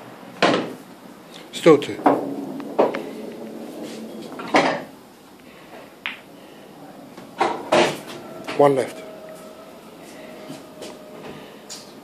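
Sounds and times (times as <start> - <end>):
pool balls clacking: 1.8 - 6.3, 7.1 - 11.9.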